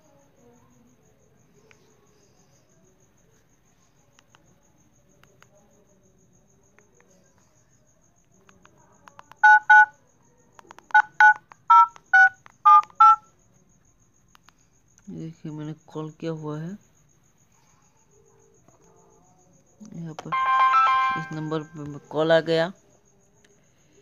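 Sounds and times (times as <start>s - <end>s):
faint clicks: 4.1s - 4.5s, 5.2s - 5.6s, 8.2s - 9.4s, 14.3s - 15.1s
touch-tone dialing beeps: 9.4s - 9.9s, 10.9s - 13.2s, 20.3s - 21.8s.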